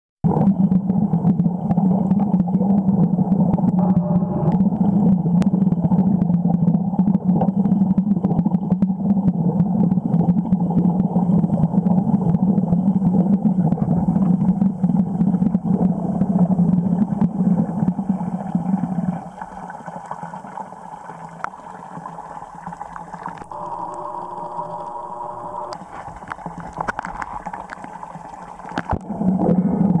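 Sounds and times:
muffled underwater hum: 0:00.2 - 0:30.0
faint steady tones: 0:03.1 - 0:07.9, 0:12.8 - 0:30.0.

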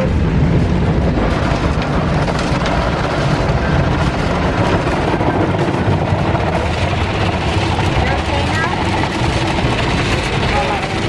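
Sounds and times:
car wash spraying water: 0:00.0 - 0:11.0
low rumble: 0:00.0 - 0:11.0.

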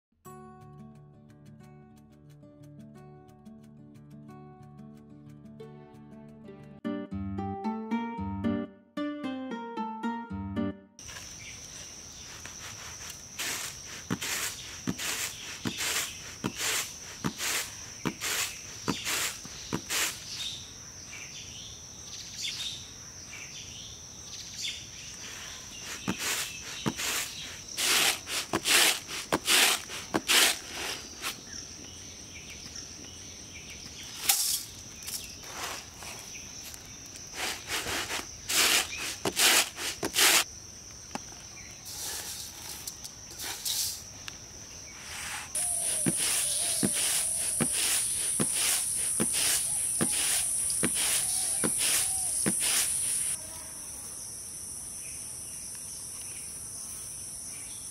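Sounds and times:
high drone of insects: 0:11.0 - 0:57.9
hand fan swishing: 0:12.2 - 0:20.4, 0:25.8 - 0:31.4, 0:37.3 - 0:40.4, 0:45.1 - 0:53.4.

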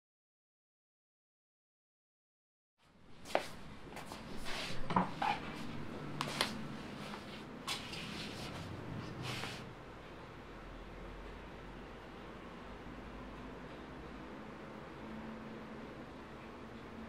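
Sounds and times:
rustling fabric: 0:03.2 - 0:09.7.

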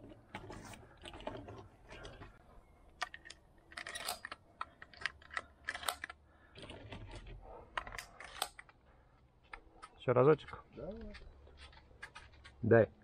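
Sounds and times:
shotgun handling clicks and clacks: 0:02.8 - 0:12.6.

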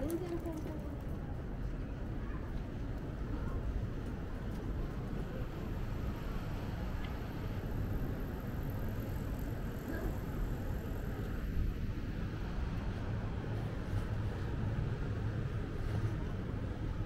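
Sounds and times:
low street rumble: 0:00.0 - 0:17.0.

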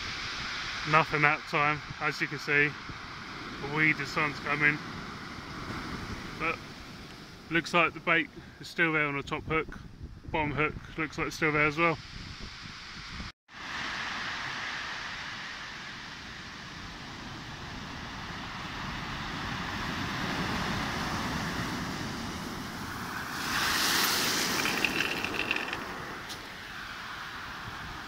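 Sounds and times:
wave rushing up pebbles: 0:22.7 - 0:28.0.

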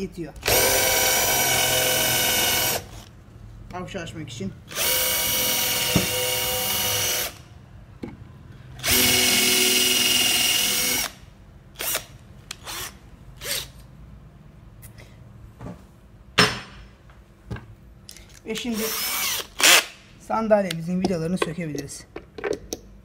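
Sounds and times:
electric drill whining: 0:00.4 - 0:03.1, 0:04.7 - 0:07.4, 0:08.8 - 0:11.2, 0:11.8 - 0:13.7, 0:18.8 - 0:19.9.

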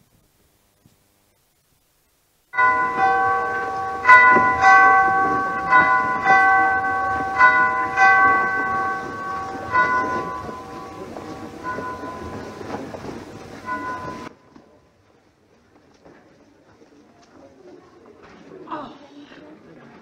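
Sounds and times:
church bells ringing: 0:02.6 - 0:14.4.

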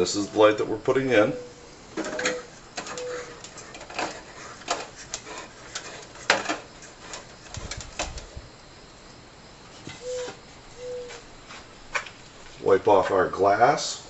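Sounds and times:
hands handling metal fixture: 0:02.0 - 0:08.2.

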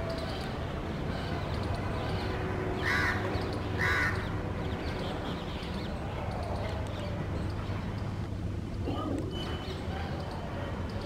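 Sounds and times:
harsh bird calls: 0:00.0 - 0:08.1.

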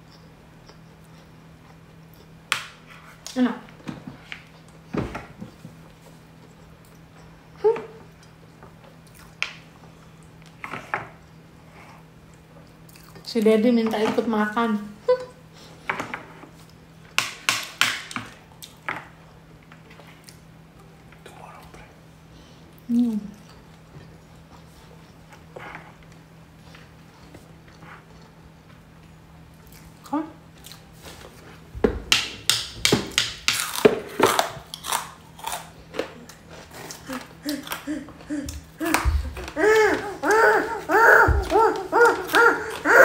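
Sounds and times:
faint steady hum: 0:00.0 - 0:43.0
crackers crunching: 0:33.5 - 0:43.0
crunching crispy crackers: 0:33.6 - 0:37.9.

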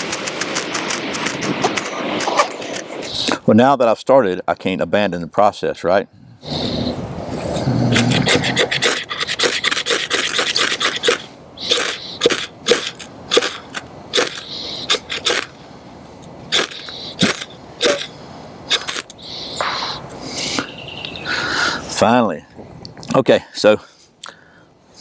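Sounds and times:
ferro rod scraping knife blade: 0:08.0 - 0:15.5, 0:16.5 - 0:20.0.

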